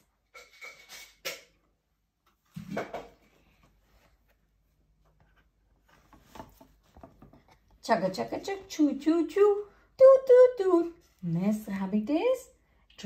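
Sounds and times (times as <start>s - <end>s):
cardboard book rustle: 3.2s - 7.8s.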